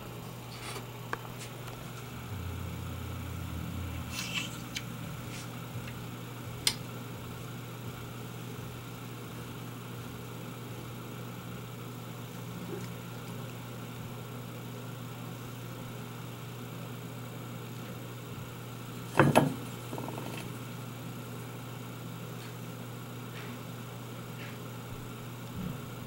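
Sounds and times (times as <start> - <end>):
low room hum: 0.0 - 26.0
deeper hum: 1.4 - 14.2.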